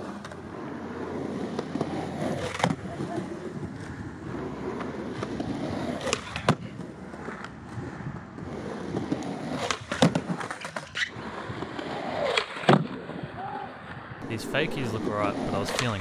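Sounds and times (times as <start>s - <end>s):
skateboard clacks: 0.0s - 13.2s, 15.0s - 16.0s
skateboard wheels rolling on concrete: 0.0s - 16.0s
skateboard tail cracking: 1.0s - 4.0s, 4.6s - 14.1s.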